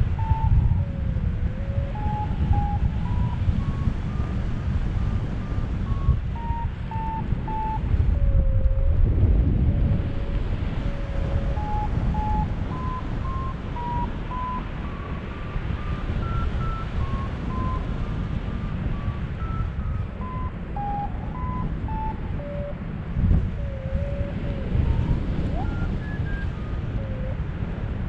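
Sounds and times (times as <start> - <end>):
wind noise on microphone: 0.0 - 28.0
variometer beeping short tones: 5.8 - 8.9, 10.8 - 17.9, 19.0 - 22.8.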